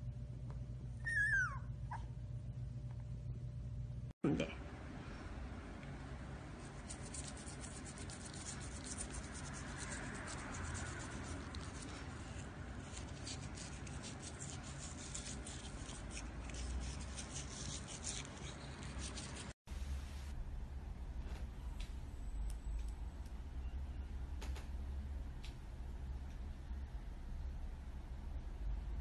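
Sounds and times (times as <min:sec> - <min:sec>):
toothbrush scrubbing teeth: 0:06.7 - 0:19.6.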